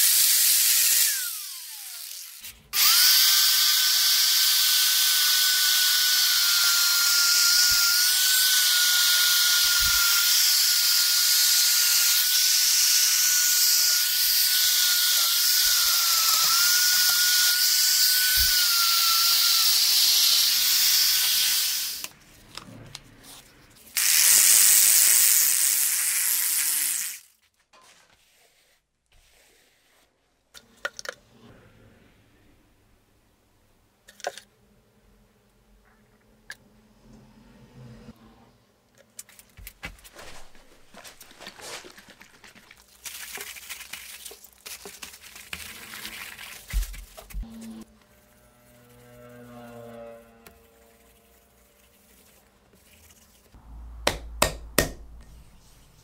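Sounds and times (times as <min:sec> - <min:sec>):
die grinder whining: 0:00.0 - 0:22.1.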